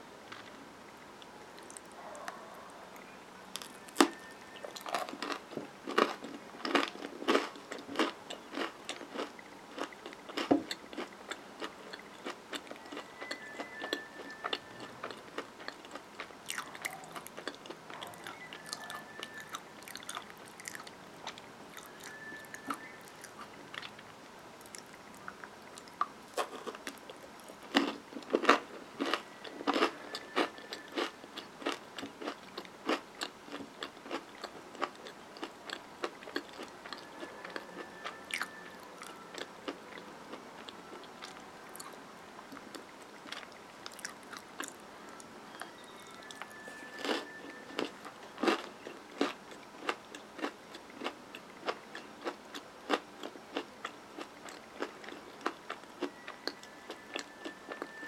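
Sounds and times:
chewing and crunching candy bar: 0:01.6 - 0:24.0, 0:24.6 - 0:58.0.

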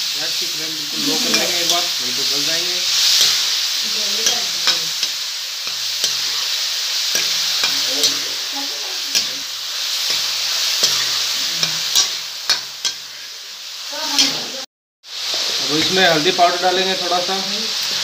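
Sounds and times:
vegetables sizzling in oil: 0:00.0 - 0:18.0
metal spoon scraping pan: 0:09.1 - 0:13.2.

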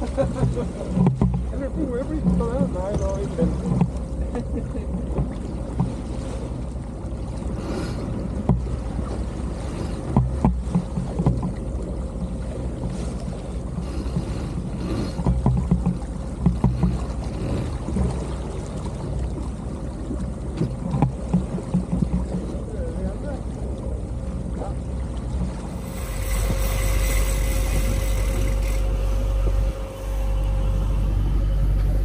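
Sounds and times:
water and wind noise: 0:00.0 - 0:32.0
low drone: 0:25.6 - 0:32.0.

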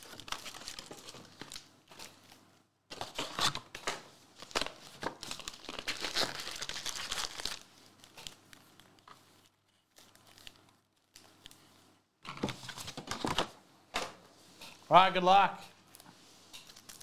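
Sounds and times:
foil card packs crinkling: 0:00.0 - 0:02.2, 0:04.4 - 0:11.6, 0:16.6 - 0:17.0.

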